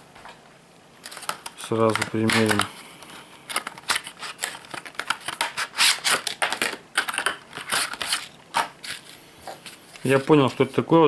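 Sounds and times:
plastic packaging crackling: 0:01.0 - 0:09.2.

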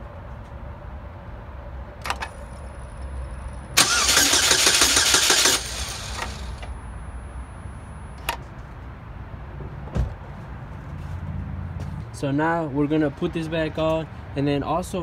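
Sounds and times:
starter motor cranking: 0:03.8 - 0:06.6.

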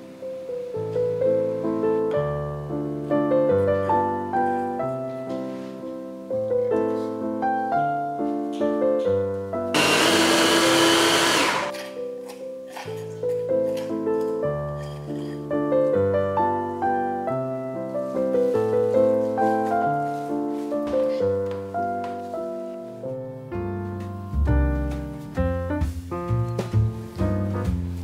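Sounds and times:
piano music: 0:00.0 - 0:28.0
electric food chopper grinding nuts: 0:09.8 - 0:11.8.

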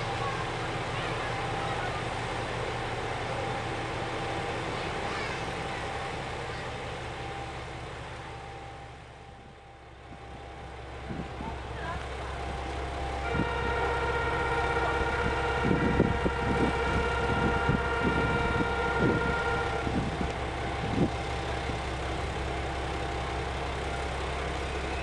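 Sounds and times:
diesel engine idling: 0:00.0 - 0:25.0
steady multi-pitch tone: 0:12.3 - 0:22.4.

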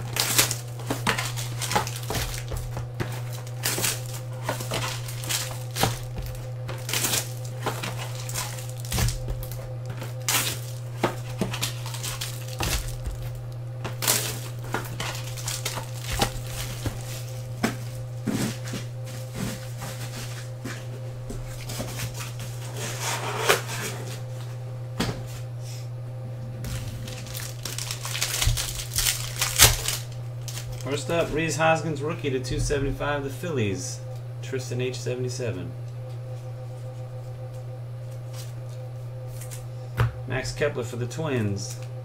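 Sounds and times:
plastic wrappers crinkling: 0:00.0 - 0:18.2, 0:26.6 - 0:31.4
steady low hum: 0:00.0 - 0:42.0.

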